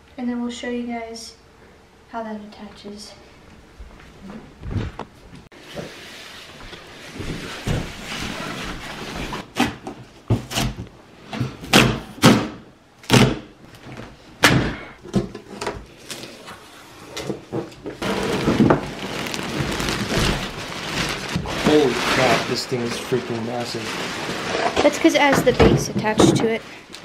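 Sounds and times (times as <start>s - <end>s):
plastic wrapping rustling: 17.9s - 27.0s.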